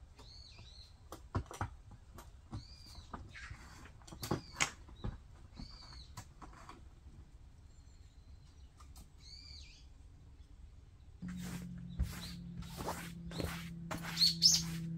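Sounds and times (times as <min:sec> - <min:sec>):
bird shrill call: 0:12.0 - 0:14.9.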